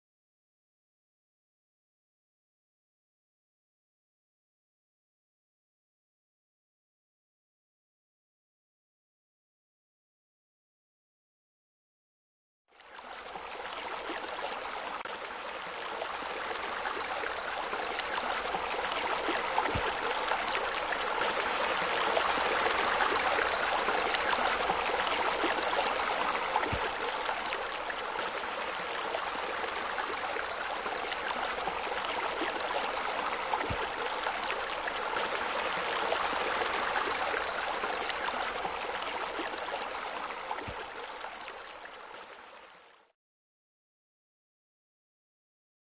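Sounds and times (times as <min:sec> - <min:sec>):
running water splashing: 0:16.5 - 0:41.0.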